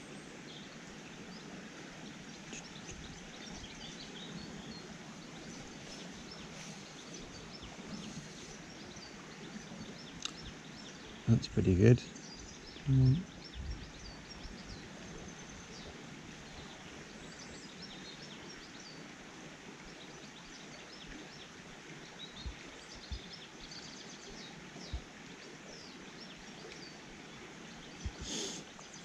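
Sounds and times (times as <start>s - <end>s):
small birds chirping: 0.0s - 19.0s, 19.8s - 29.0s
steady wind: 0.0s - 29.0s
wind thumps on microphone: 12.9s - 14.0s, 22.4s - 23.3s, 28.0s - 28.3s.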